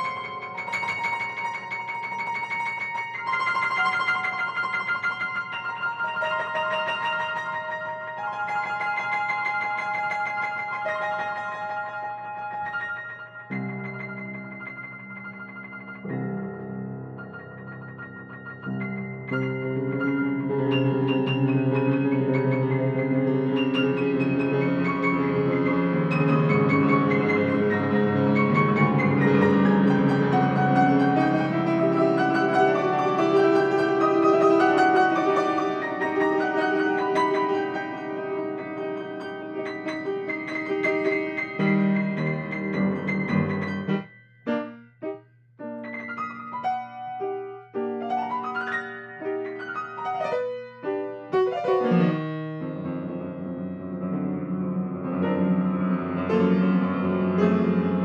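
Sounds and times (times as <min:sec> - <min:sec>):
grand piano chords: 0:00.0 - 0:58.0.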